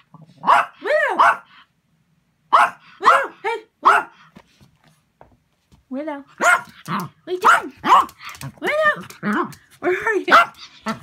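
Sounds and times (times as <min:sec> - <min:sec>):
small dog yapping: 0:06.4 - 0:09.5.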